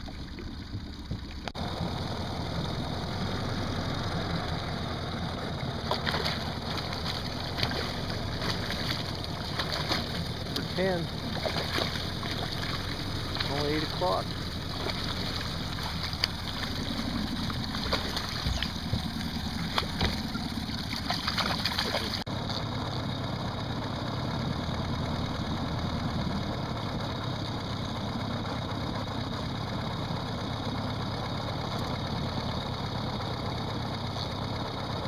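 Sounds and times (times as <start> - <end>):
boat motor running: 0.0 - 35.0
fish splashing at surface: 5.8 - 22.3.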